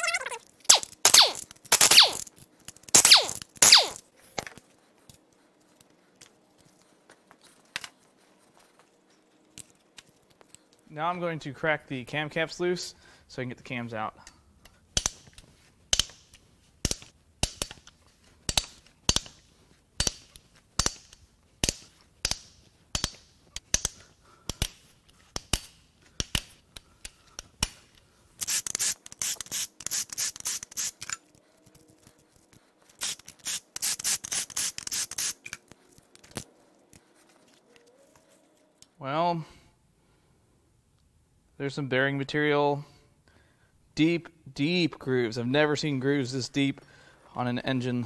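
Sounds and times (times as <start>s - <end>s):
ratchet wrench clicking: 28.4s - 31.2s, 33.0s - 35.6s.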